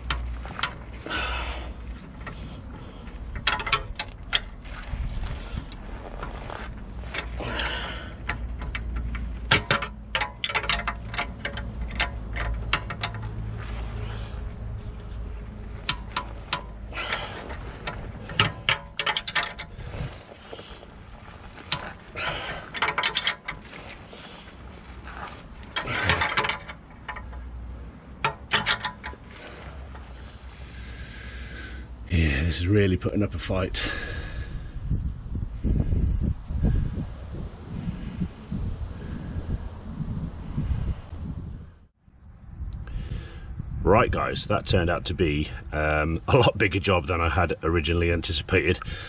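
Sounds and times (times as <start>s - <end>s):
ratchet spanner clicking: 8.2s - 13.5s, 28.2s - 29.2s.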